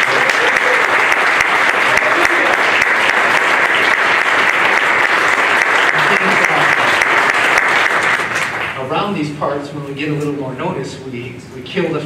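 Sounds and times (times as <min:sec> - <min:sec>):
crowd clapping: 0:00.0 - 0:08.9.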